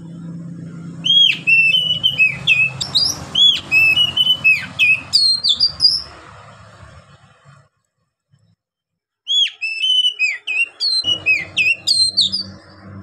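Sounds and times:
bird singing whistled notes: 1.0s - 6.2s, 9.3s - 13.0s.

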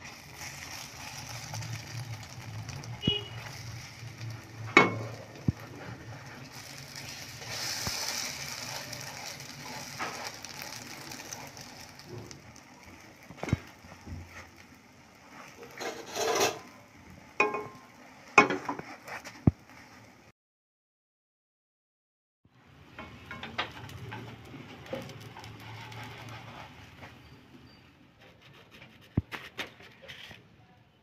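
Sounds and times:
spatula scraping and knocking pan: 0.0s - 20.1s, 22.9s - 27.4s
fritters sizzling in oil: 0.0s - 20.3s, 22.6s - 27.9s.

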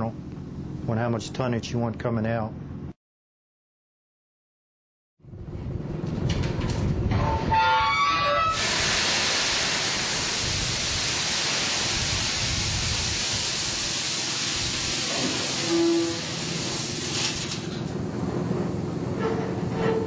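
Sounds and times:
rumble: 5.2s - 7.6s, 16.6s - 20.0s
brief squealing tones: 15.6s - 16.3s.

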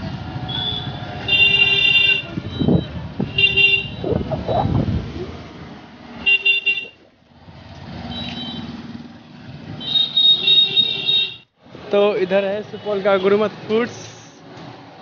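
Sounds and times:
traffic hum: 0.0s - 15.0s
vehicle horns honking: 0.5s - 4.1s.

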